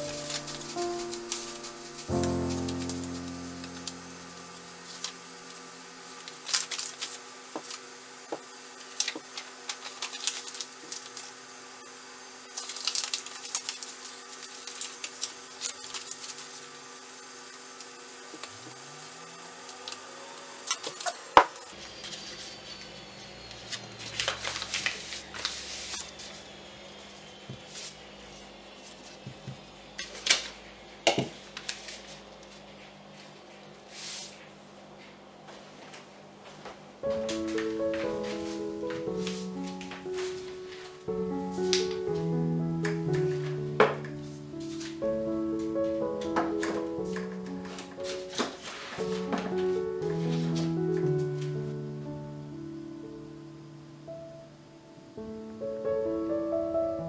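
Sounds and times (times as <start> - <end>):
paper crinkling and rustling: 0.0 - 7.9, 8.8 - 11.4, 12.5 - 16.8, 23.5 - 26.6, 31.3 - 34.5, 37.0 - 42.0, 43.1 - 45.0, 45.6 - 51.7.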